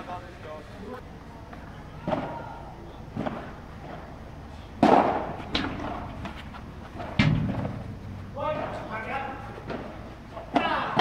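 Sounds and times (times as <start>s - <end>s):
ball rebounding off glass walls: 4.8s - 6.3s, 7.0s - 8.8s
dull thump: 7.0s - 8.7s
padel ball hits: 7.0s - 8.7s.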